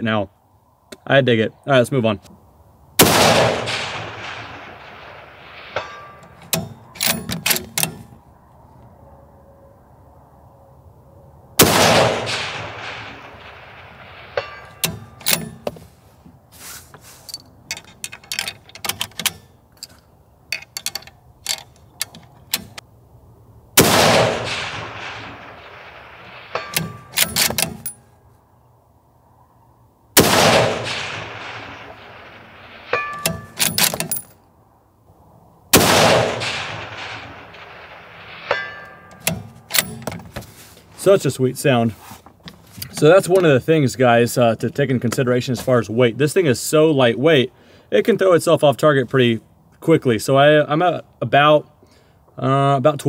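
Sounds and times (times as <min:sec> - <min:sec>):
rifle bolt metallic clicks: 0:03.0 - 0:08.2, 0:11.6 - 0:15.8, 0:17.3 - 0:22.9, 0:23.8 - 0:28.0, 0:30.2 - 0:34.4, 0:35.8 - 0:40.3
rifle shots with rolling echo: 0:03.0 - 0:08.2, 0:11.6 - 0:15.6, 0:23.8 - 0:28.2, 0:30.2 - 0:34.1, 0:35.7 - 0:40.0.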